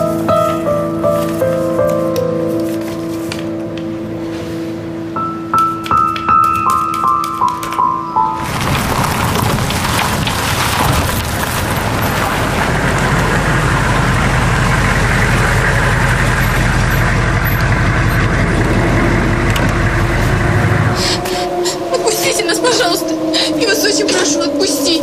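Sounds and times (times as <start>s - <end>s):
engine rumble: 8.4s - 25.0s.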